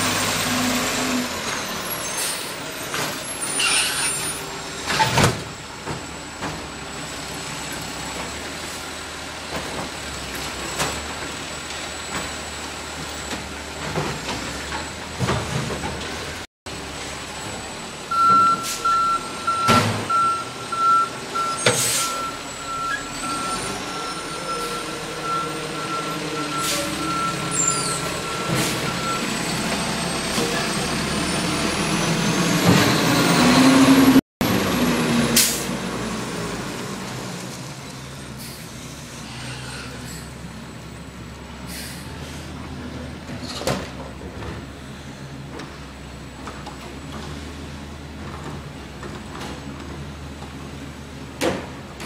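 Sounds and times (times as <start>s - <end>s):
garbage truck running: 0.0s - 52.0s
backup alarm beeping: 18.1s - 29.4s.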